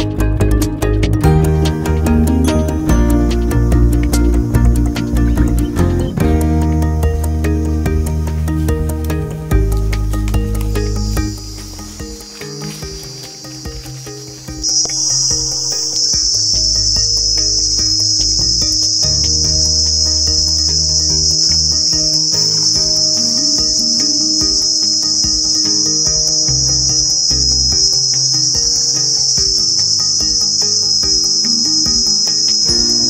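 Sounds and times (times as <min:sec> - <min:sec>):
shrill insect chorus: 0:09.2 - 0:33.0.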